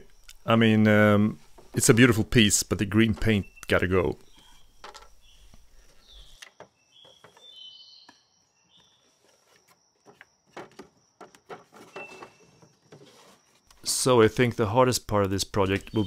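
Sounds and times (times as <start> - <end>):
faint bird chirps: 3.1 - 9.4
wooden drawer knocking and scraping: 10.0 - 13.6.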